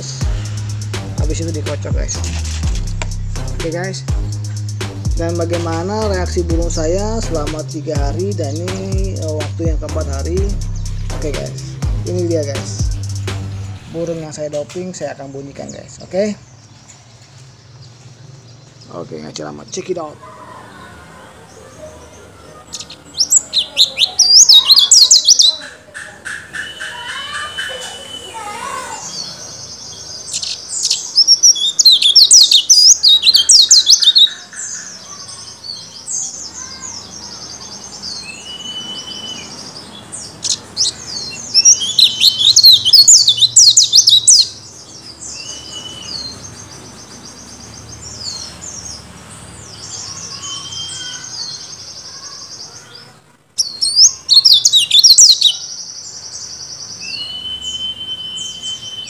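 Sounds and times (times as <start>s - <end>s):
bird twittering warble: 22.6s - 49.0s, 53.6s - 56.2s
thin high bird trill: 22.7s - 29.6s, 30.3s - 44.6s.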